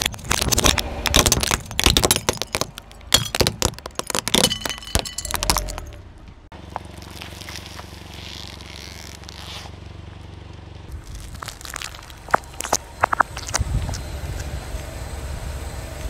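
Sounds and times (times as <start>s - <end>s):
plastic cracking under car tyre: 0.0s - 5.9s, 6.6s - 9.8s, 10.9s - 14.0s
car engine humming: 0.0s - 16.0s.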